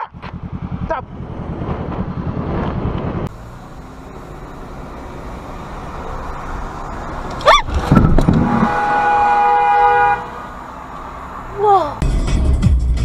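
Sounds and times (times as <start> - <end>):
car road noise hum: 0.0 - 13.0
motorcycle engine running: 0.0 - 13.0
wind rush: 6.4 - 9.2.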